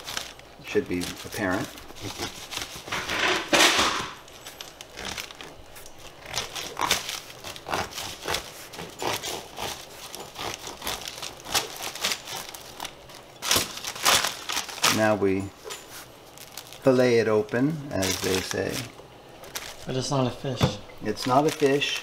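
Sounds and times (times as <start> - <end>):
bread knife sawing crusty bread: 6.2 - 12.5.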